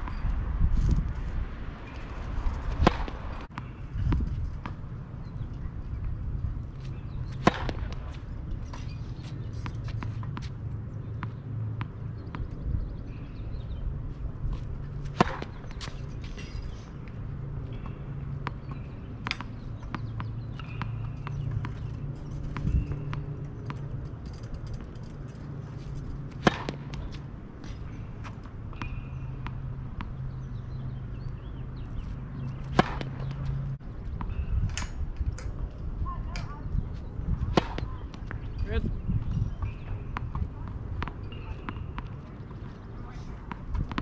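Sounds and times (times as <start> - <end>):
racket hitting tennis ball: 2.4 - 4.8, 7.0 - 10.6, 14.5 - 16.7, 26.2 - 34.9, 37.4 - 38.5.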